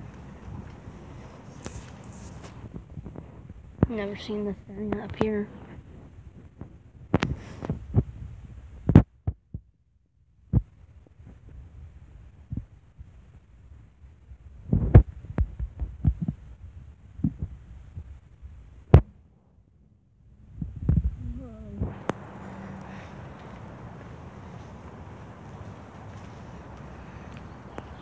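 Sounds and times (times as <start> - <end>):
faint low rumble: 0.0 - 28.0
footsteps on concrete: 21.9 - 28.0.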